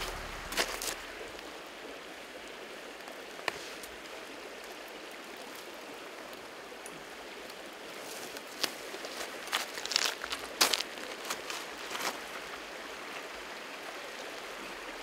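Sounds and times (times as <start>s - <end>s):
mountain stream rushing: 0.0s - 15.0s
dry twigs clicking: 8.1s - 12.0s.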